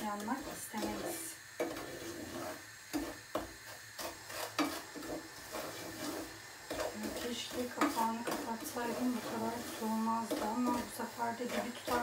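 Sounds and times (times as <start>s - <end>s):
wooden spoon scraping pot: 0.0s - 12.0s.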